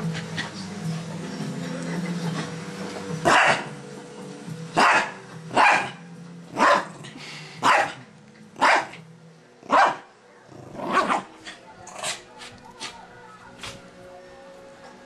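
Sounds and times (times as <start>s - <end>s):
small dog barking: 3.2s - 3.7s, 4.8s - 6.0s, 6.6s - 6.9s, 7.6s - 8.0s, 8.6s - 9.0s, 9.7s - 10.1s.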